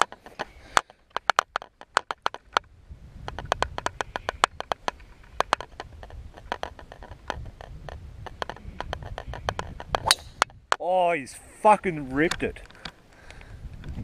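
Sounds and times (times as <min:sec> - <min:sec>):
crackling clicks: 0:00.0 - 0:10.6
wind rumble on microphone: 0:02.5 - 0:10.7, 0:12.1 - 0:14.0.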